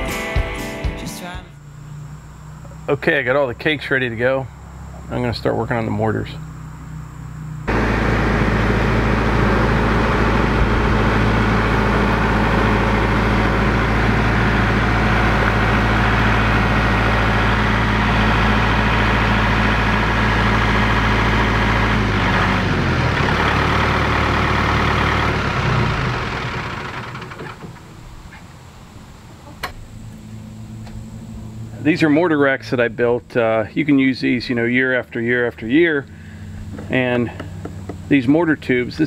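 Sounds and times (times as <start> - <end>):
tractor diesel engine running: 0.0 - 39.0.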